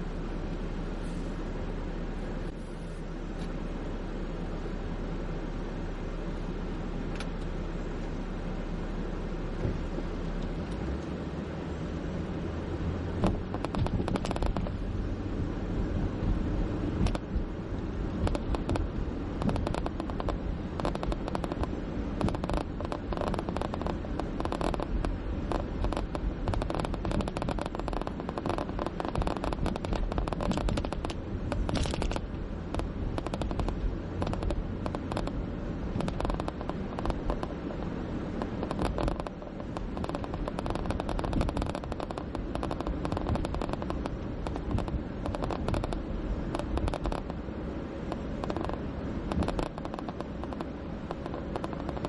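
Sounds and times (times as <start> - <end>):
low road rumble: 0.0 - 52.0
crackling rattle of rapid clicks: 13.2 - 14.9, 17.0 - 17.5, 18.1 - 47.4, 48.0 - 52.0.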